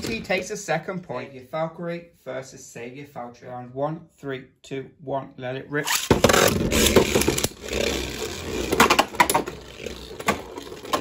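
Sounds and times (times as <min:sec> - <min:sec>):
spinning tops grinding on plastic: 0:05.9 - 0:11.0.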